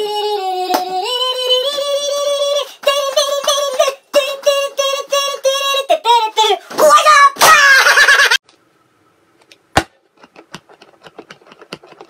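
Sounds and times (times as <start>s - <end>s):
high-pitched singing voice: 0.0s - 7.8s.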